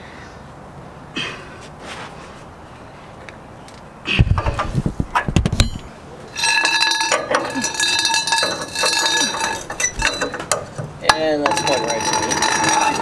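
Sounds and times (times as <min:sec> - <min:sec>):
metallic ringing: 0:05.6 - 0:13.0.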